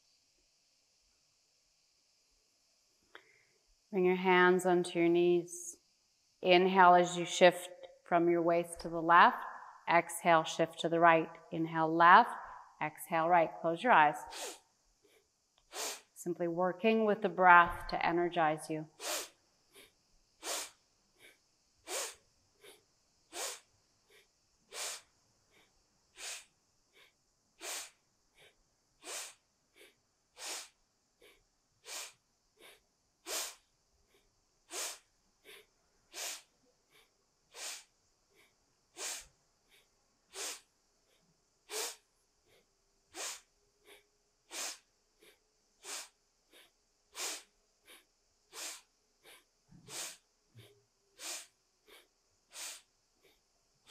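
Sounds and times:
person breathing forcefully: 0:14.2 - 0:16.1, 0:19.0 - 0:53.9.

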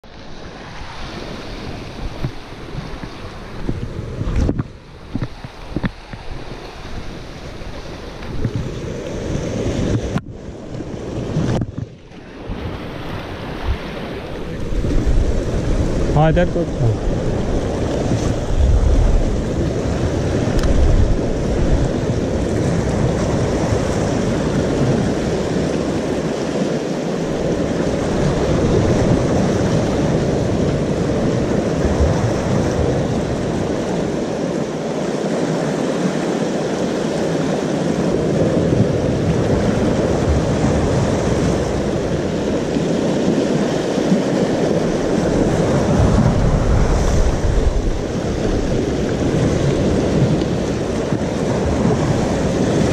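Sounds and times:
waves breaking over rocks: 0:00.0 - 0:52.9
wind rumbling on microphone: 0:00.0 - 0:52.9.

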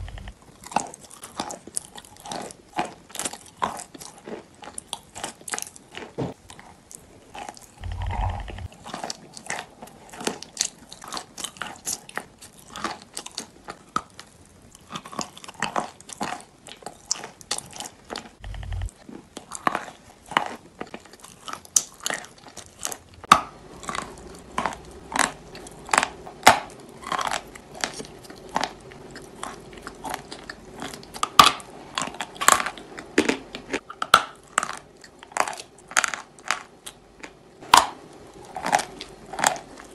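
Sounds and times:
wet mouth sounds: 0:18.4 - 0:18.9.

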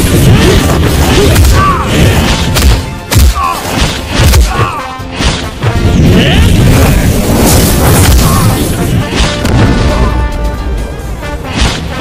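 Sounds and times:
loud action music: 0:00.0 - 0:12.0
sharp crashing hit effects: 0:05.2 - 0:10.1.

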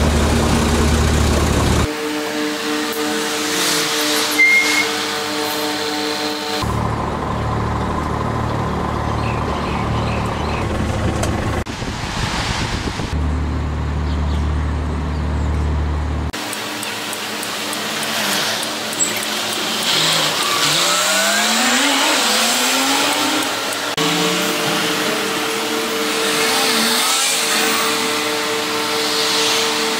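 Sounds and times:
diesel bus engine humming: 0:00.0 - 0:01.9, 0:04.4 - 0:11.7, 0:13.2 - 0:21.8, 0:22.6 - 0:26.3
engine accelerating through gears: 0:06.6 - 0:11.7, 0:13.2 - 0:29.9
cars passing: 0:17.2 - 0:29.9.

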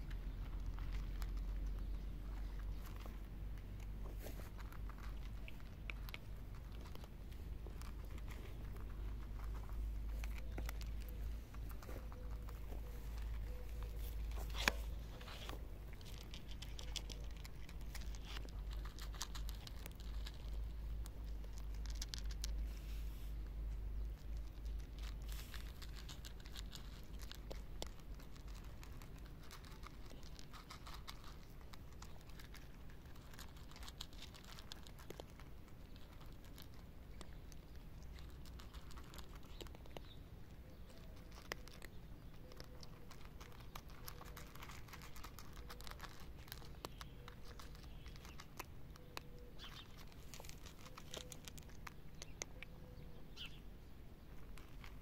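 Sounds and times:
cats crunching dry kibble: 0:00.0 - 0:55.0.

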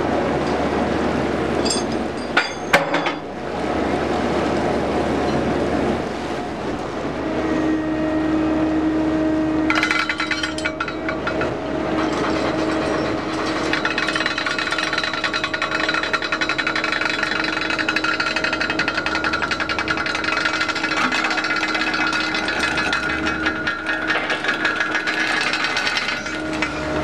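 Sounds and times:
machinery hum: 0:00.0 - 0:27.0
steel chains rattling: 0:09.7 - 0:27.0.

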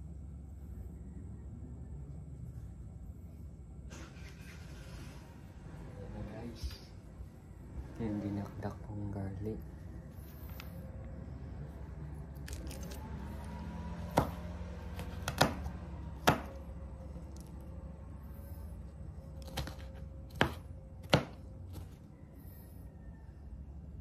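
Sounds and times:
steady low hum: 0:00.0 - 0:24.0
knife chopping on cutting board: 0:14.1 - 0:16.6, 0:19.4 - 0:21.9.

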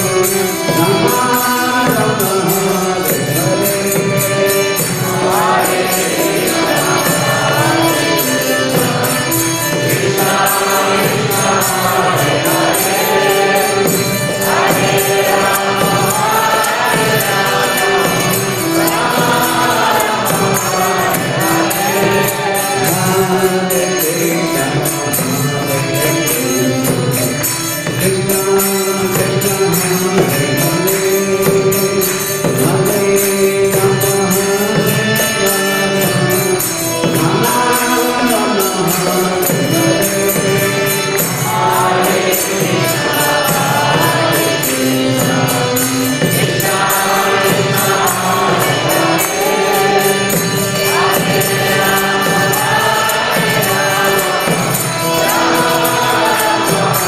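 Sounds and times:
harmonium: 0:00.0 - 0:57.0
group chanting: 0:04.7 - 0:24.7, 0:37.1 - 0:57.0.

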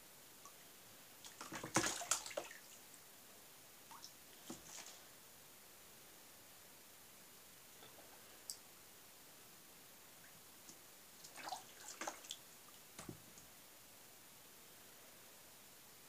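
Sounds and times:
small water splashes and drips: 0:01.2 - 0:02.9, 0:03.8 - 0:05.0, 0:10.2 - 0:13.5.

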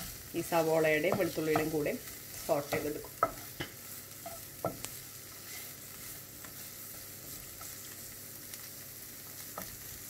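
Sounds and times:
wooden spatula tapping and scraping: 0:00.0 - 0:08.0, 0:09.4 - 0:09.8
vegetables sizzling in oil: 0:00.0 - 0:10.0.

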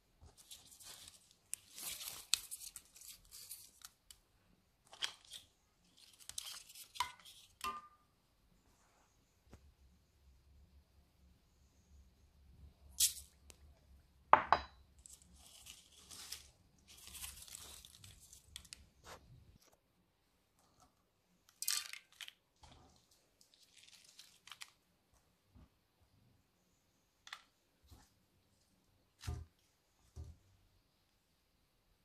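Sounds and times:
rustling and crinkling: 0:00.0 - 0:04.2, 0:15.0 - 0:19.8, 0:20.5 - 0:25.8.

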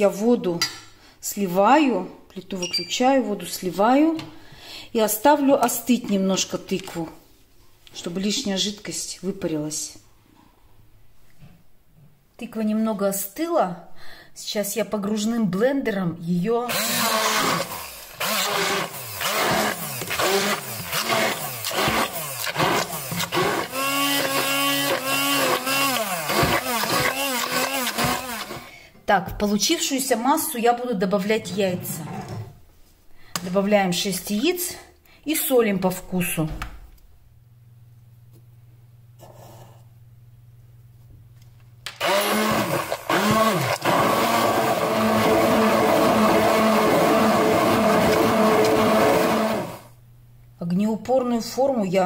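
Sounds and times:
immersion blender motor: 0:16.7 - 0:28.7, 0:41.9 - 0:49.9.

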